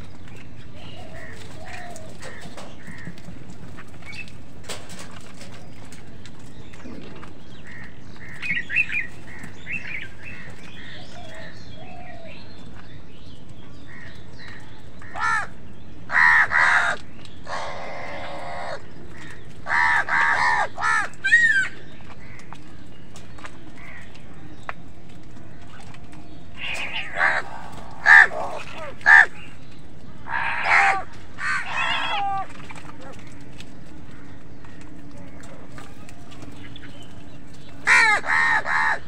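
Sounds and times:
crows cawing: 0.8s - 3.8s, 7.5s - 11.7s, 13.9s - 22.6s, 23.7s - 24.3s, 26.6s - 29.5s, 30.2s - 33.4s, 37.8s - 39.0s.

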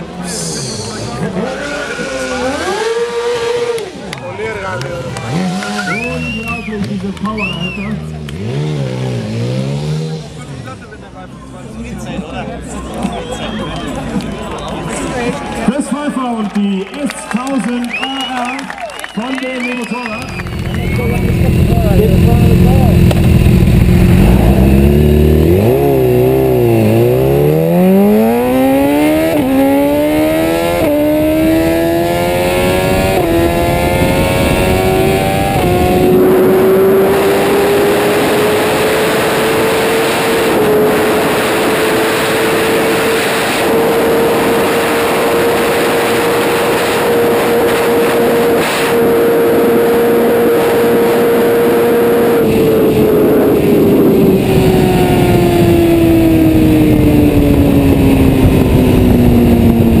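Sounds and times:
motorcycle engine accelerating: 0.0s - 11.2s, 20.1s - 60.0s
wind rushing: 52.1s - 60.0s.

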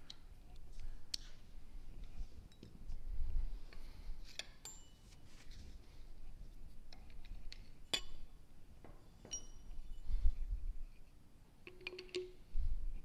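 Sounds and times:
metal tools clinking: 9.2s - 10.0s.

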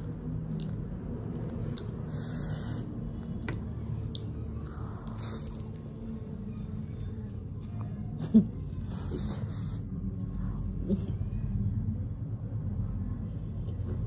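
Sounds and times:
chewing and biting: 0.0s - 2.2s
low steady hum: 0.0s - 14.0s.

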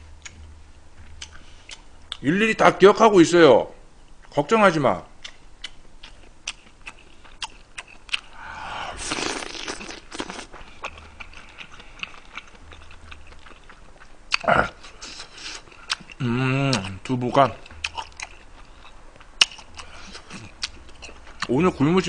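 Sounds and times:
close chewing: 5.2s - 21.6s.

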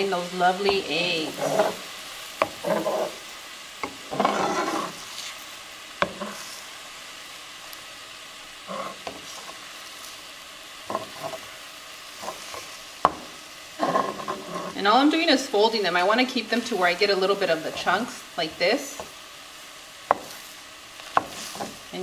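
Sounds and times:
eggs sizzling: 0.0s - 22.0s
spatula tapping pan: 0.6s - 3.0s, 3.8s - 4.4s, 12.2s - 14.4s, 20.0s - 20.4s, 21.0s - 21.8s
spatula scraping frying pan: 0.6s - 6.8s, 8.6s - 10.2s, 10.8s - 14.9s, 20.0s - 22.0s.

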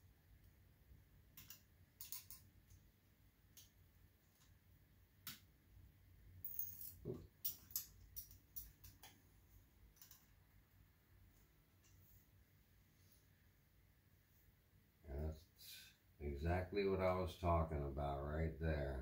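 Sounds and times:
clicks of small plastic parts: 1.4s - 2.8s, 9.9s - 10.3s.

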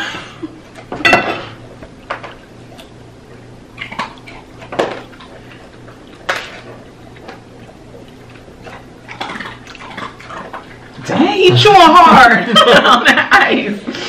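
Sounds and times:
cutlery clinking on plates: 1.0s - 1.6s.

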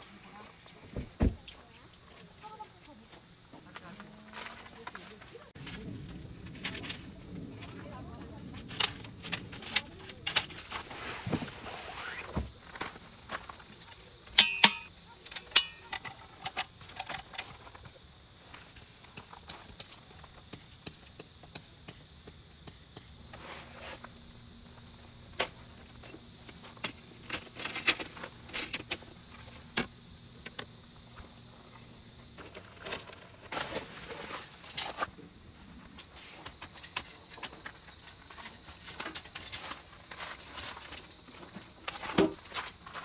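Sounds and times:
folding furniture clattering: 5.6s - 13.5s.

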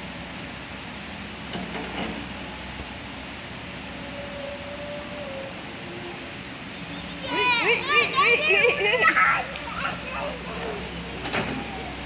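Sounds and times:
hydraulic excavator running: 1.4s - 7.2s, 9.2s - 12.0s.

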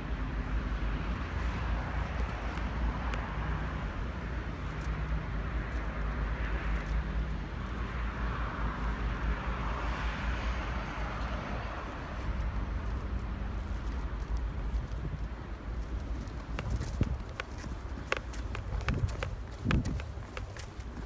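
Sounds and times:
faint engine hum: 0.0s - 21.0s
wind buffeting microphone: 7.6s - 21.0s.

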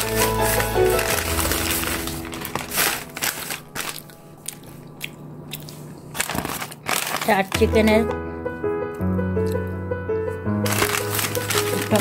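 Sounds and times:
plastic and paper bags rustling: 0.0s - 4.8s, 6.1s - 8.2s, 10.6s - 12.0s.

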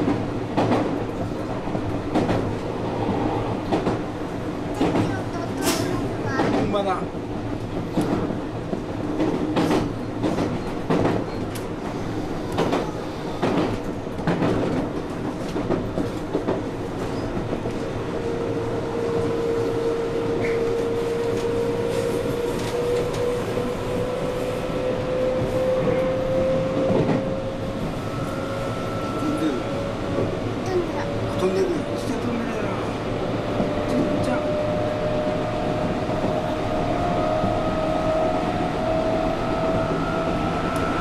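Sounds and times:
electric train whine: 16.8s - 41.0s.

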